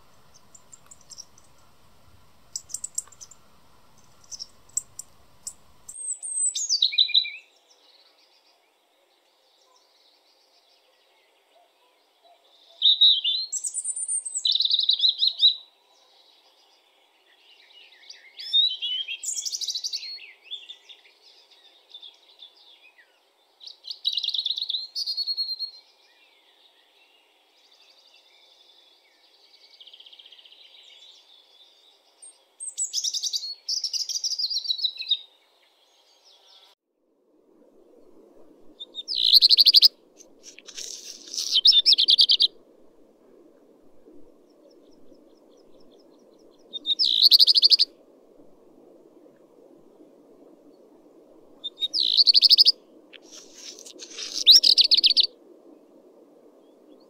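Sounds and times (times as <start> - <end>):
robin singing: 0.0 - 7.5, 38.8 - 42.6, 44.8 - 47.9, 51.6 - 55.3.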